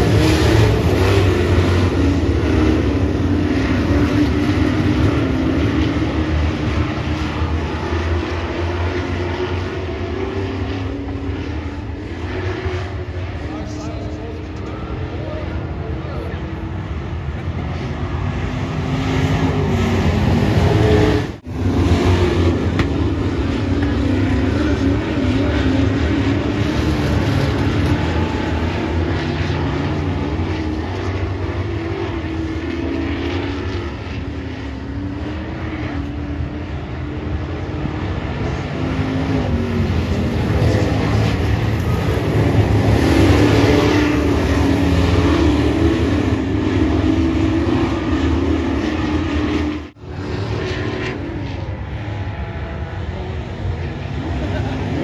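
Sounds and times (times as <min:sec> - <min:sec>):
racing truck engines: 0:00.0 - 0:55.0.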